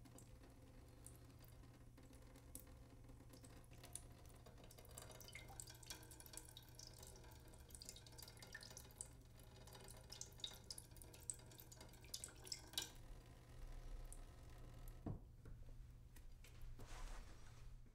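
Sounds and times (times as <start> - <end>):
water dripping into sink: 0.0 - 15.3.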